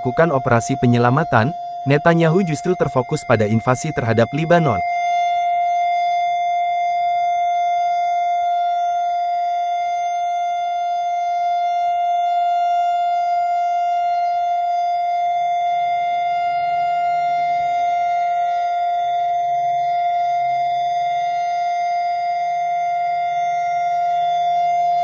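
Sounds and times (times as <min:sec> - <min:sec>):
siren steady tone: 0:00.0 - 0:25.0.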